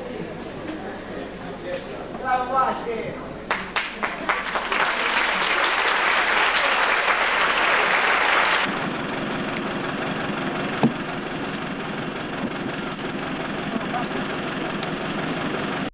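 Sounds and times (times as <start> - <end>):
audience applause: 3.5 - 8.8.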